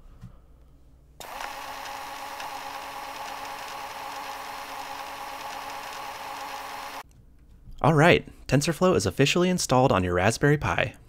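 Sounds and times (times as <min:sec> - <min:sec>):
held tones: 0:01.2 - 0:07.0
steady whirring: 0:01.2 - 0:07.0.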